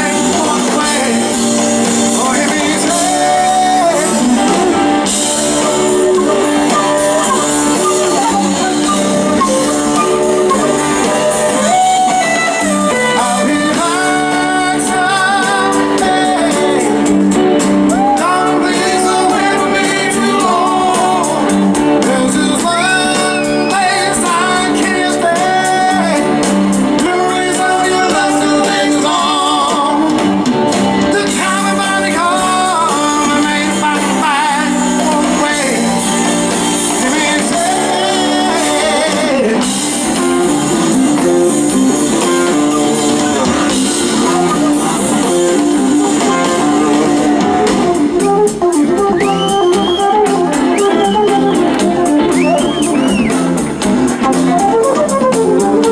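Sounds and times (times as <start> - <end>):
man singing: 0.0 - 30.4, 31.0 - 53.6
rock band playing: 0.0 - 55.9
flute playing: 3.0 - 17.1, 22.6 - 24.5, 41.6 - 53.6, 54.2 - 55.9.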